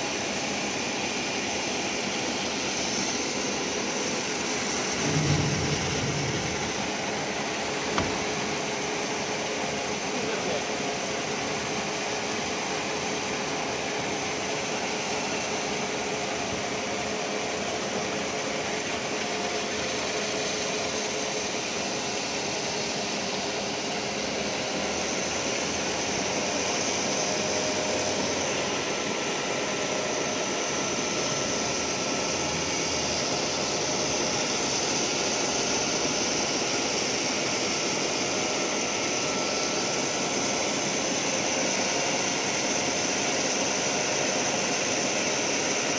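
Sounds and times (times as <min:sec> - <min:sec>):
machine hum: 0:04.2 - 0:09.3.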